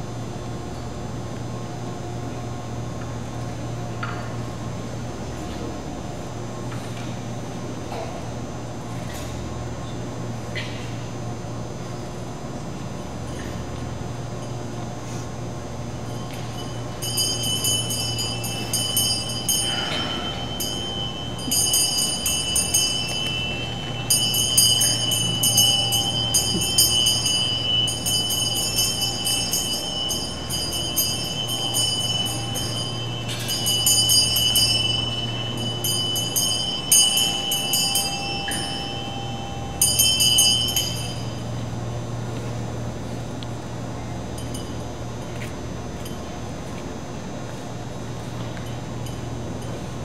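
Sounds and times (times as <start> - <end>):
hand bell ringing: 16.0 - 41.7.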